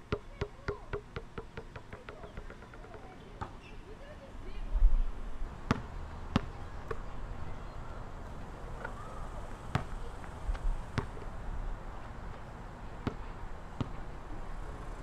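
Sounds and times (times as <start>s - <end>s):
basketball bouncing on court: 0.1s - 3.6s, 5.7s - 7.0s, 9.7s - 11.3s, 13.0s - 14.0s.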